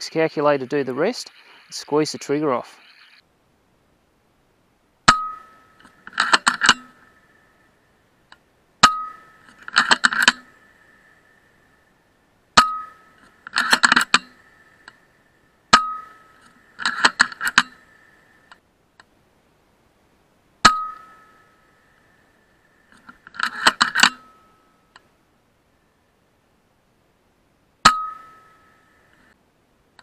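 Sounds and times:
metallic clicks of rifle lever: 0:05.8 - 0:07.0, 0:09.4 - 0:11.0, 0:13.2 - 0:15.0, 0:16.4 - 0:17.8, 0:22.9 - 0:24.3.

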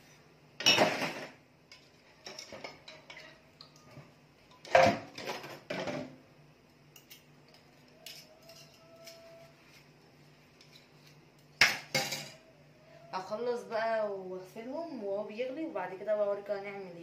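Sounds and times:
dishes and cutlery clinking: 0:00.6 - 0:03.9, 0:07.0 - 0:09.5, 0:10.6 - 0:12.4.

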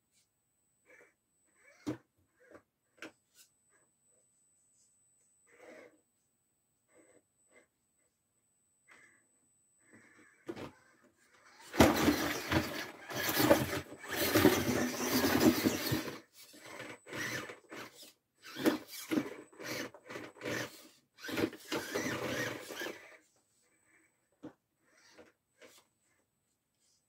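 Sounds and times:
rc car motor running: 0:10.2 - 0:23.4, 0:24.9 - 0:25.8
tyres scraping on wooden boards: 0:11.7 - 0:16.2.

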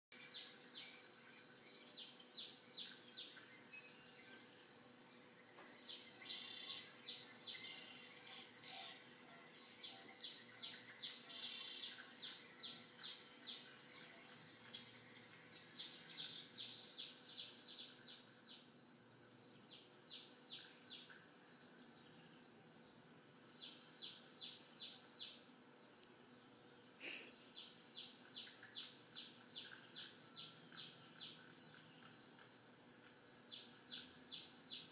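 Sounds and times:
faint steady high tone: 0:00.2 - 0:17.9
birds chirping through tv speaker: 0:05.5 - 0:18.7.

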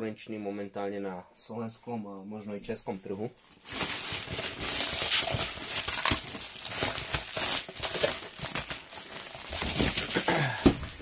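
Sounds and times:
plastic bag crinkling: 0:03.5 - 0:11.0.

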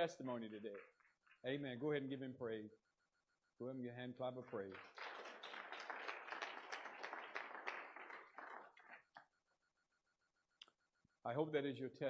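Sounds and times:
crowd clapping hands: 0:00.0 - 0:01.6, 0:04.3 - 0:09.3.

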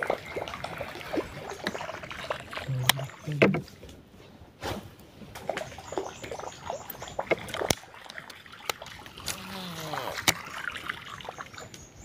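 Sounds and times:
water splashing and trickling: 0:00.0 - 0:12.0
sharp knocks and clicks: 0:02.8 - 0:03.7.

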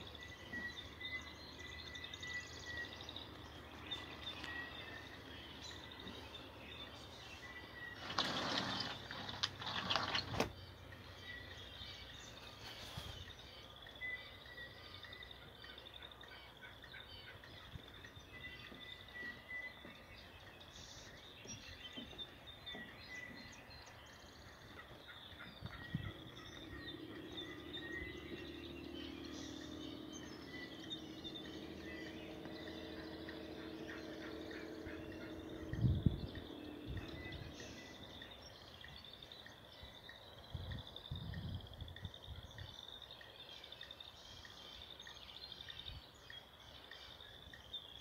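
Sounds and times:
songbirds chirping: 0:00.0 - 0:48.0.

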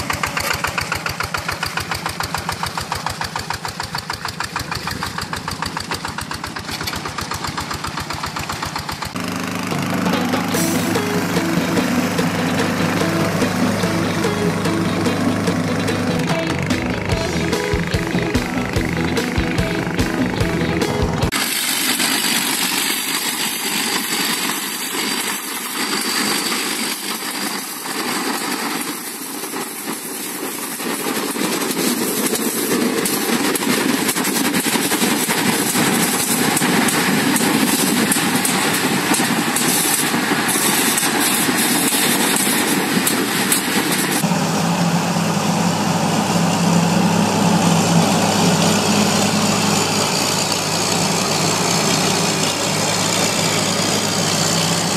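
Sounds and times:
crawler tractor engines running: 0:00.0 - 0:54.9
deep engine hum: 0:09.1 - 0:21.4.

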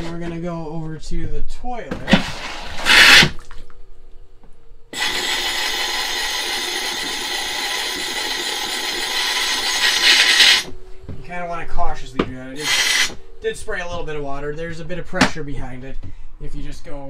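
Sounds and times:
air and water hissing through toilet valve: 0:02.0 - 0:03.6, 0:04.9 - 0:10.8, 0:12.6 - 0:13.3.

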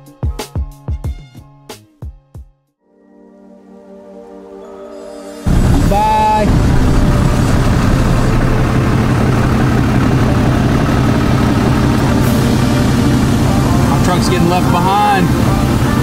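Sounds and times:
pickup truck engine running: 0:05.5 - 0:16.0
short pitched sound: 0:05.5 - 0:16.0.

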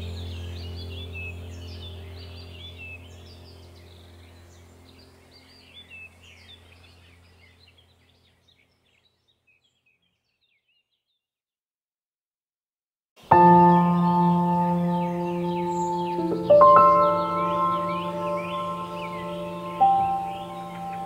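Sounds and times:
ambient music drone: 0:00.0 - 0:08.0, 0:13.2 - 0:21.0
birdsong chirping: 0:00.0 - 0:11.3, 0:13.2 - 0:21.0.

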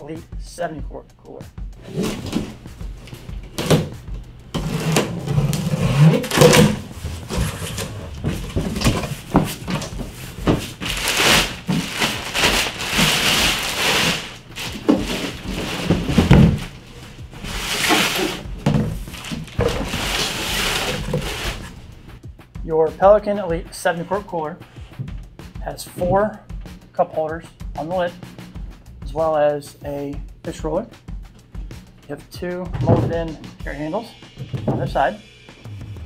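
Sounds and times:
knocks and thumps: 0:01.8 - 0:21.9, 0:24.9 - 0:25.3, 0:32.6 - 0:33.7, 0:34.3 - 0:35.1
cardboard flaps scraping: 0:01.8 - 0:22.0, 0:32.6 - 0:33.5
plastic bag rustling: 0:01.8 - 0:22.1.

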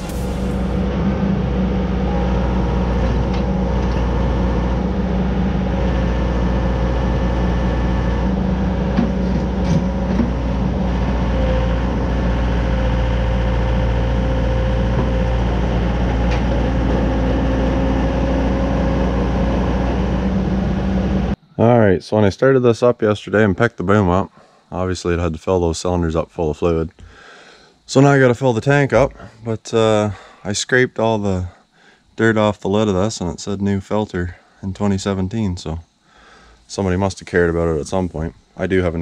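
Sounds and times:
excavator diesel engine running: 0:00.0 - 0:21.4.

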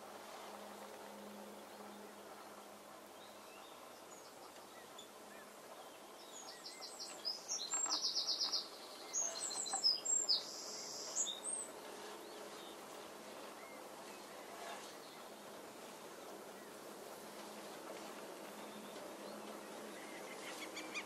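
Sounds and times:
faint open-air background: 0:00.0 - 0:21.0
small songbird singing: 0:03.2 - 0:15.3.

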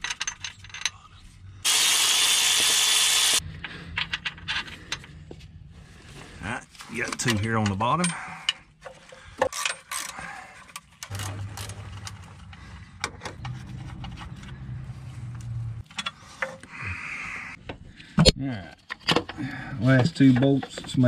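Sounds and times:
low steady hum: 0:10.7 - 0:18.7.

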